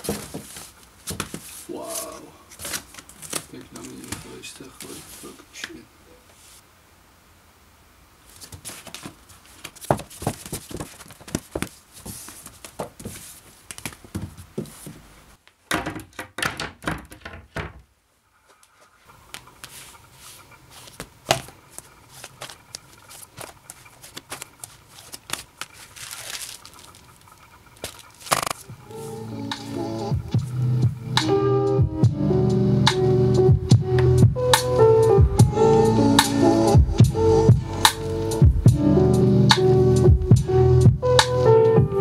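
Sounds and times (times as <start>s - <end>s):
record sleeves sliding and rustling: 0.0s - 6.7s, 8.2s - 15.2s, 18.5s - 29.8s.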